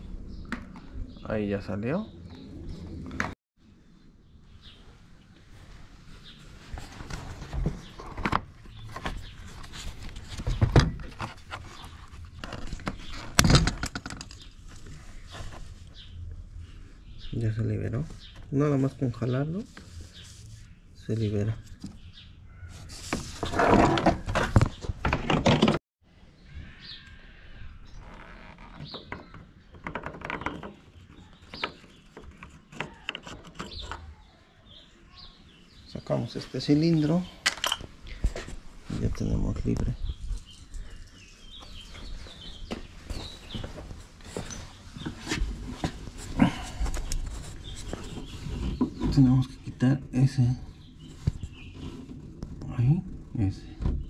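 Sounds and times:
bird chirping: 0.0 - 5.3, 26.2 - 38.2, 38.9 - 54.0.

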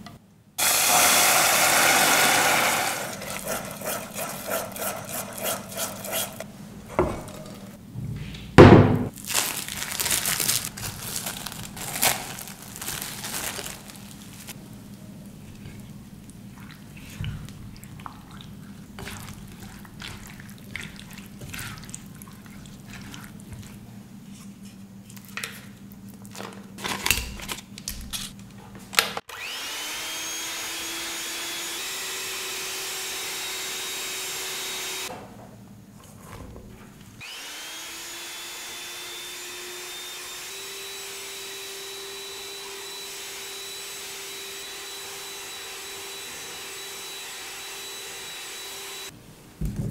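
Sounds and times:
electric hand mixer whirring: 0.6 - 7.8, 29.3 - 35.1, 37.2 - 49.1
spatula scraping glass bowl: 3.1 - 6.5.

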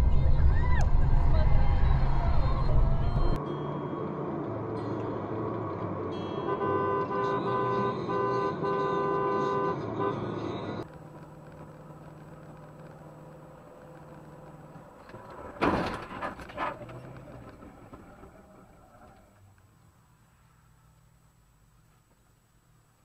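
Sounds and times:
road noise: 0.0 - 23.0
car horn short blasts: 6.4 - 10.4
cars colliding bang: 15.5 - 16.4.

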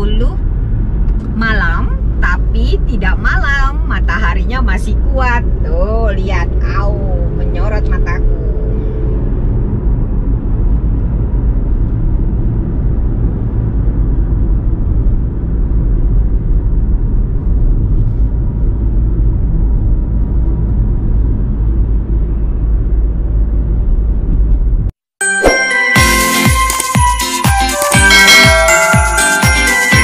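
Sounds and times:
car engine rumble: 0.0 - 25.0.

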